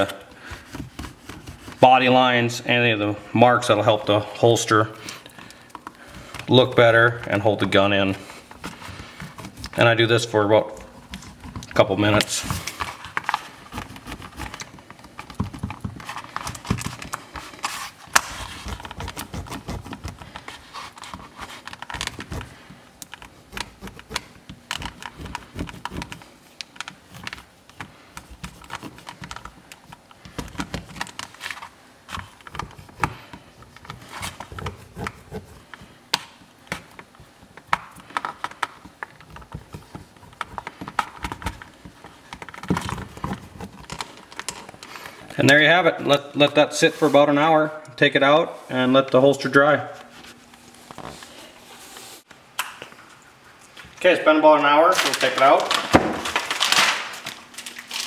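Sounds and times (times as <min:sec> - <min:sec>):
marker rubbing on plastic bag: 0:00.5 - 0:01.9, 0:17.7 - 0:22.7.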